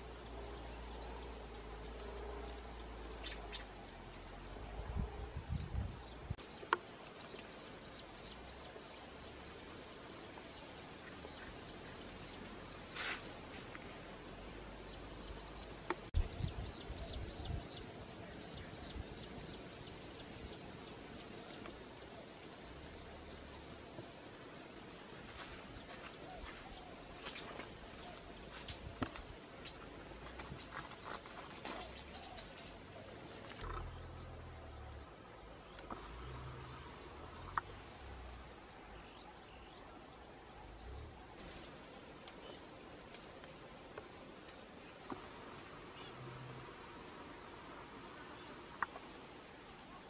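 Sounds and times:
insects: 0:00.0 - 0:50.0
rustling: 0:12.3 - 0:14.4, 0:25.2 - 0:33.9.

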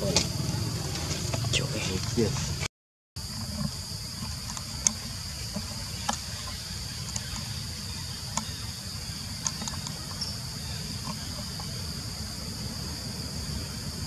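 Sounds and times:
high-pitched insect drone: 0:03.2 - 0:14.0.

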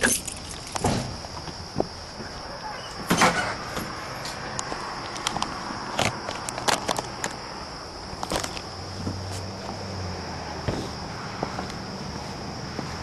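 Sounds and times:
footsteps on porch: 0:00.0 - 0:07.4, 0:08.0 - 0:13.0.

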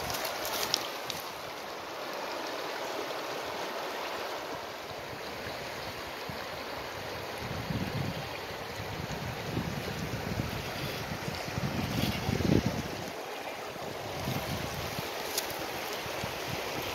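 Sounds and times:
stream flowing over stones: 0:00.0 - 0:16.9
wind buffeting microphone: 0:07.0 - 0:13.2, 0:13.8 - 0:16.9.

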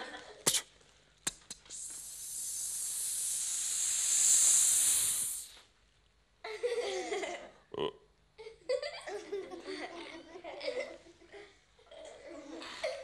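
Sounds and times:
man making mouth sound effects: 0:00.4 - 0:05.6, 0:07.7 - 0:08.1.

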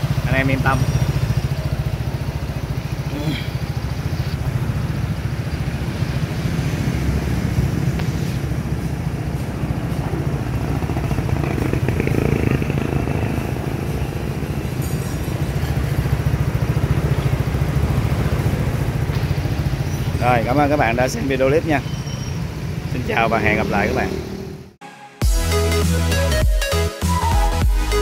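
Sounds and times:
scooter engine idling: 0:00.0 - 0:06.4, 0:07.6 - 0:21.6.

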